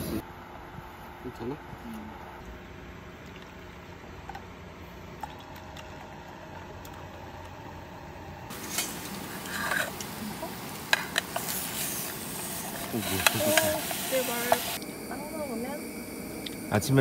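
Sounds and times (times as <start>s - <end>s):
food sizzling in a frying pan: 8.5s - 16.0s.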